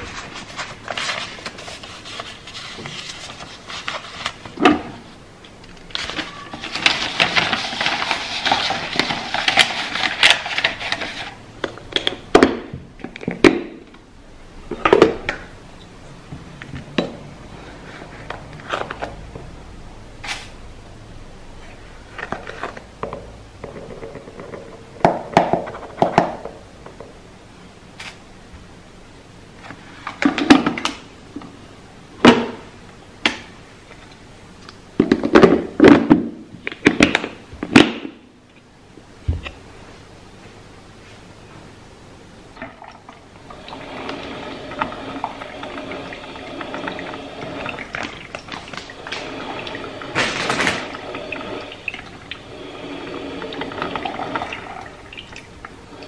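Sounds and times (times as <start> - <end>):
plastic scraping and rustling: 0.0 - 5.1, 5.7 - 12.1, 17.8 - 19.2, 47.5 - 51.2.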